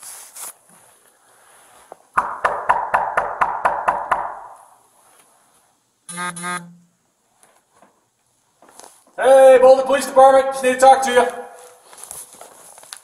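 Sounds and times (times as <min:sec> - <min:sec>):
two-part buzzing tone: 0:06.1 - 0:07.0.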